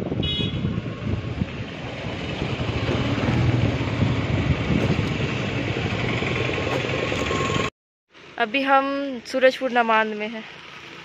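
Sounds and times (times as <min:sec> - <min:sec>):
wind noise on microphone: 0:00.0 - 0:07.7
motorcycle engine running: 0:00.6 - 0:07.7.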